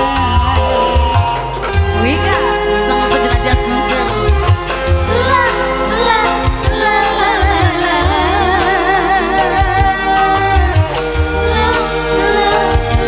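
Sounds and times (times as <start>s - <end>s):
woman singing with band: 1.8s - 11.0s.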